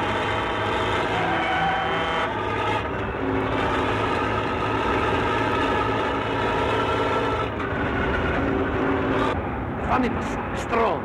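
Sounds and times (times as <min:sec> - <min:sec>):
air horn blast: 0:00.0 - 0:02.9
lorry engine at speed: 0:00.0 - 0:11.0.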